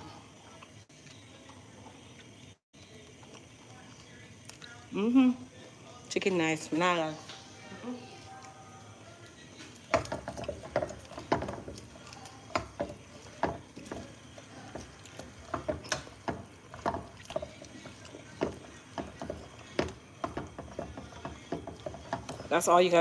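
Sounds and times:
tongs clacking against skillet: 9.8s - 23.0s.

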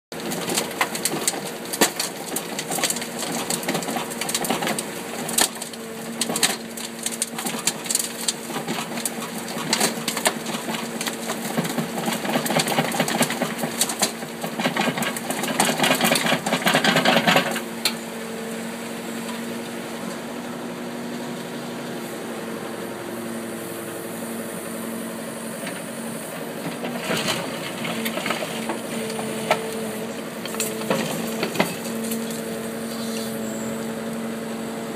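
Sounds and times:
bucket scraping rocky ground: 0.2s - 17.7s, 25.7s - 33.7s
soil and stones clattering: 0.2s - 17.7s, 26.6s - 33.4s
excavator engine running: 0.2s - 34.9s.

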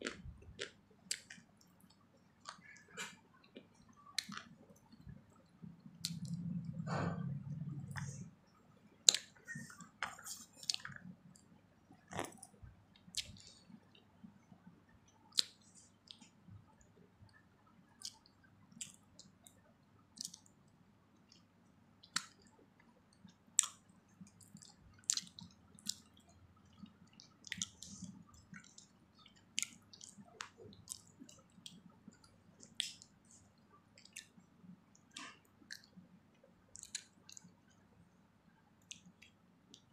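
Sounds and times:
faint low hum: 0.0s - 39.9s
wet chewing mouth clicks: 6.0s - 7.1s, 24.4s - 26.1s, 26.7s - 33.4s, 35.1s - 36.0s, 36.7s - 37.5s.

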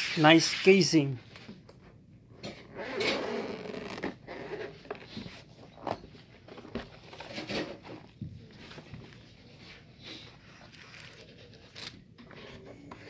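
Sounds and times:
zipper rasping pulls: 2.6s - 4.6s.

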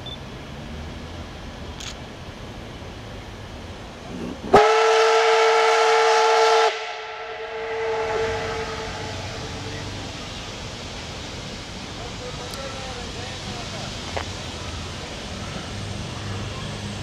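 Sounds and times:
steam locomotive whistle: 4.5s - 10.0s.

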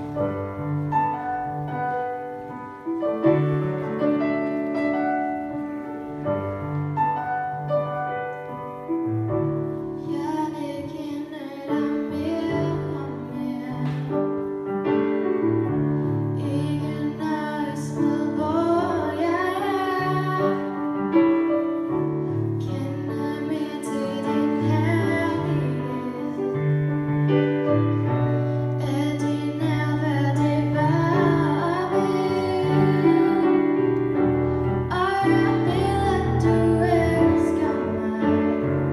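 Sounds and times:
piano accompaniment: 0.0s - 38.9s
girl singing into a microphone: 9.9s - 14.5s, 16.3s - 20.8s, 22.5s - 26.6s, 28.8s - 33.9s, 34.8s - 38.9s.

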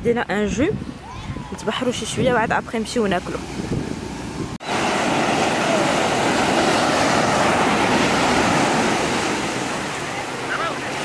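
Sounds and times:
surf washing onto sandy beach: 3.2s - 11.0s.

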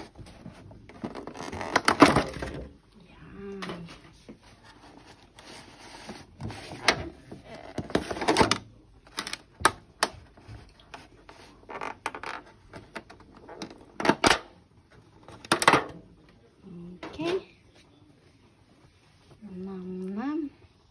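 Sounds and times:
plastic lids clicking and crackling: 0.8s - 2.8s, 6.5s - 14.6s, 15.2s - 16.0s.

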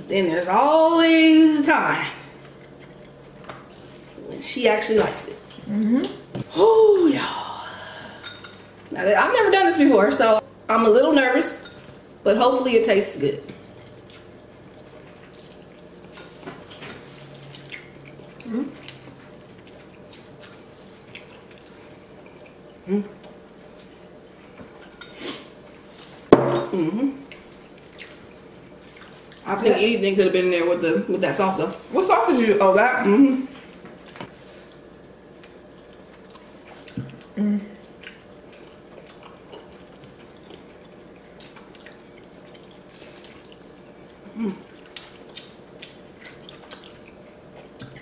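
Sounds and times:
person humming mm: 5.7s - 7.6s, 18.4s - 18.8s, 26.7s - 27.2s, 37.4s - 37.8s, 44.3s - 44.7s
wet chewing and lip smacks: 17.4s - 24.0s, 35.4s - 48.0s.

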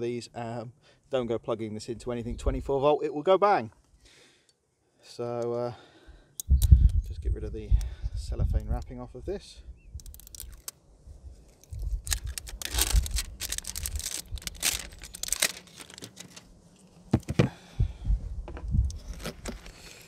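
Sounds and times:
sharp plastic clicks: 6.4s - 7.1s, 10.0s - 10.8s
cellophane crinkling and tearing: 10.0s - 10.7s, 11.5s - 16.5s, 18.9s - 19.8s.

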